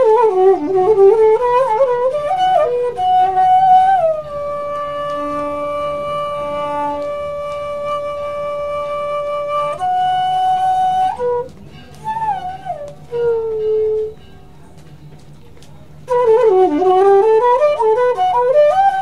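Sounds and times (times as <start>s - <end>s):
slow flute melody: 0.0s - 19.0s.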